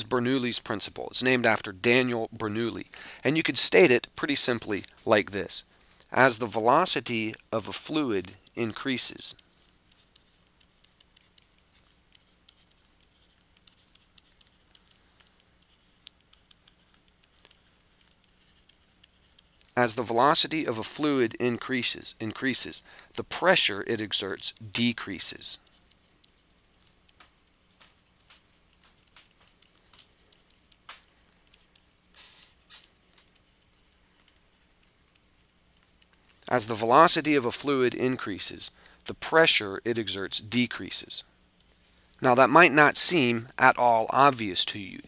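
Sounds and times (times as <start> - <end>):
faint low hum: 0.0 - 45.0
stylus tapping and scratching: 0.2 - 41.0.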